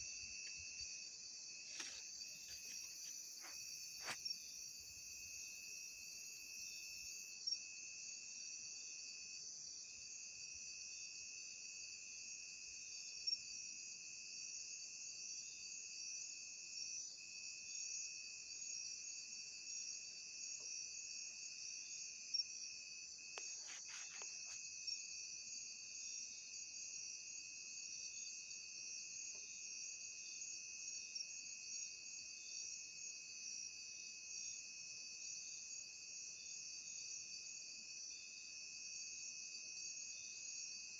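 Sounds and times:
crickets chirping shrilly: 0.0 - 7.4, 21.1 - 27.5.

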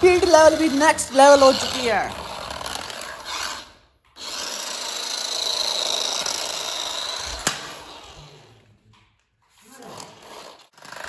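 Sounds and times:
toy car motor whirring: 0.0 - 8.6
plastic wheels on stone floor: 0.0 - 11.0.

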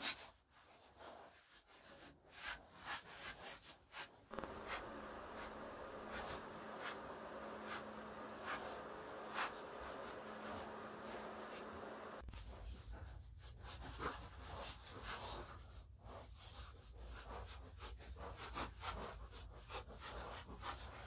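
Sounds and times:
sandpaper rubbing: 2.4 - 12.2.

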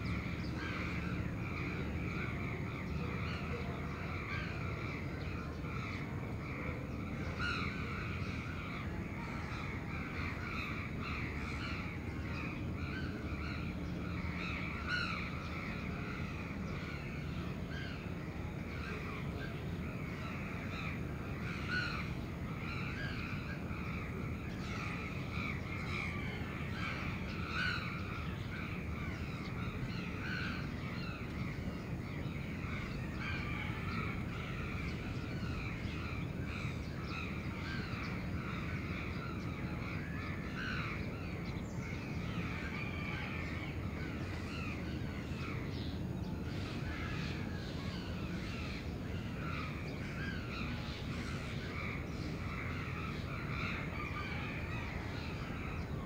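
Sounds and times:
low city rumble: 0.0 - 56.0
crows cawing: 0.1 - 18.1, 20.1 - 45.9.

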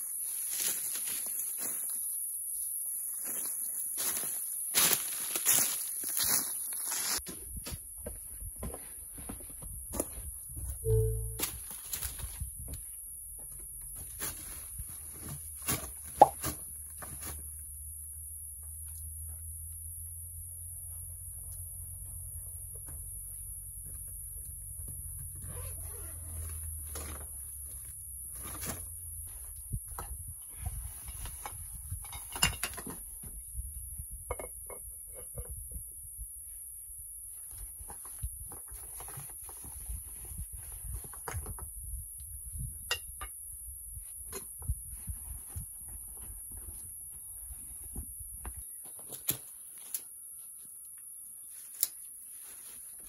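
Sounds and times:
steady high-pitched hiss: 0.0 - 15.8.

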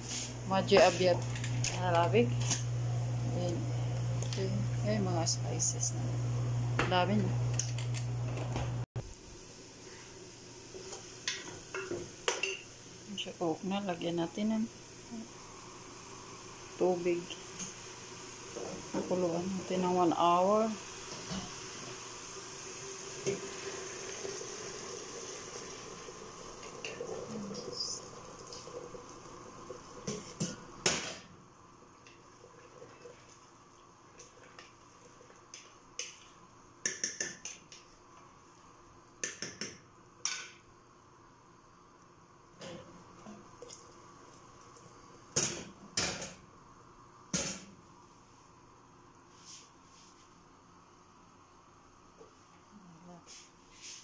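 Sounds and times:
sauce sizzling in a pot: 0.0 - 8.2, 9.0 - 37.1, 41.6 - 45.8
loud boiling bursts: 0.0 - 33.7
water pouring from a kettle: 20.8 - 31.0, 32.2 - 35.3.

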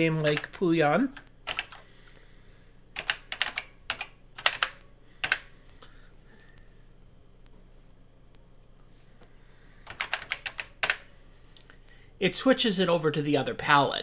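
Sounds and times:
keyboard keys clicking: 1.1 - 1.8, 3.0 - 5.5, 9.9 - 11.0.

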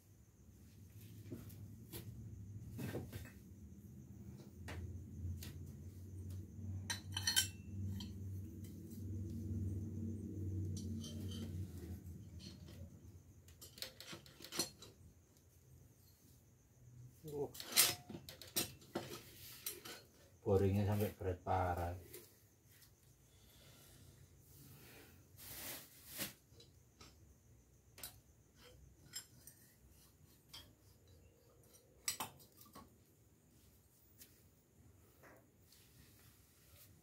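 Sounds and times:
low steady hum: 0.6 - 16.4
metal clinks and scrapes: 6.0 - 15.2, 16.0 - 21.1, 25.4 - 33.1
metal scraping rattle: 10.4 - 15.0.

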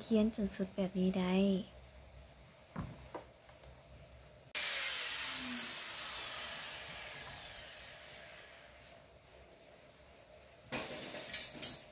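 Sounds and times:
loud hiss: 4.6 - 8.6.

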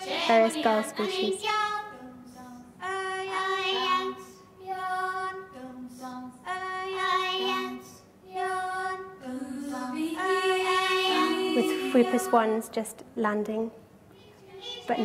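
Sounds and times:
women singing gull-like calls: 8.4 - 12.6.

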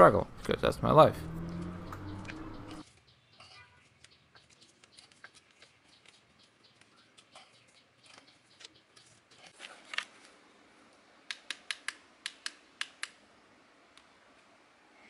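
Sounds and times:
sharp clicks: 1.5 - 2.8, 11.3 - 13.2.

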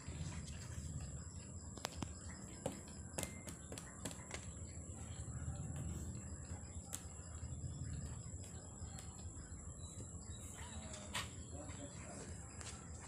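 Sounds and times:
crickets chirring: 0.0 - 13.0
low rumble: 4.7 - 10.5.

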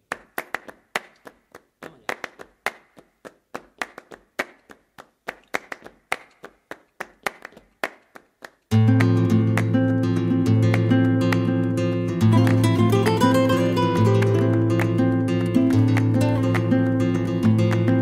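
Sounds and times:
rhythmic hand clapping: 0.0 - 18.0
strummed acoustic guitar: 8.7 - 18.0.

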